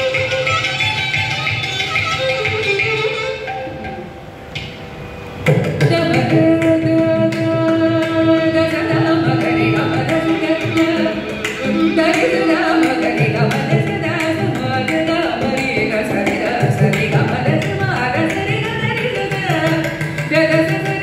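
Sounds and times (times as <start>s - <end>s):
violin: 0.0s - 21.0s
woman singing: 5.8s - 21.0s.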